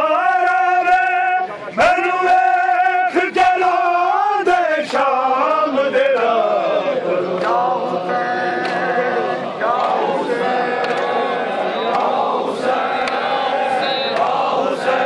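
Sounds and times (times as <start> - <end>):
men chanting together: 0.0 - 15.0.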